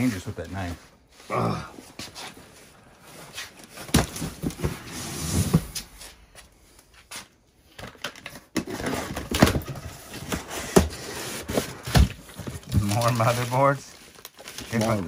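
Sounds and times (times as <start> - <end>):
cardboard boxes being rummaged: 8.3 - 15.0.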